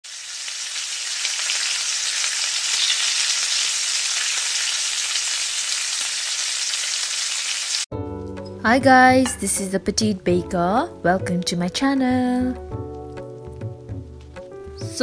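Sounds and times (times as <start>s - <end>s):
mixture sizzling in a frying pan: 0.0s - 7.9s.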